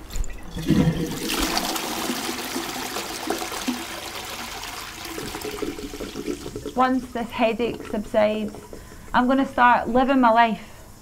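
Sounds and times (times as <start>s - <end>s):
toilet flushing: 0.0s - 10.0s.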